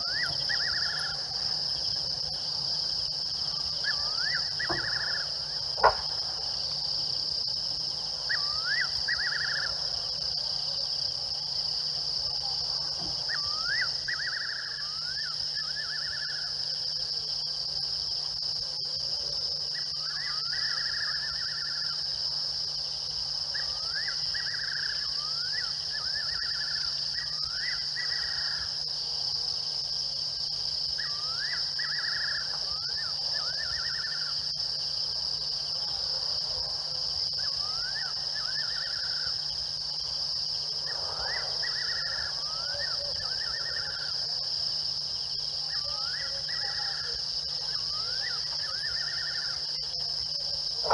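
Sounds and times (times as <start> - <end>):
insects shrilling: 0.0 - 10.3, 37.4 - 50.9.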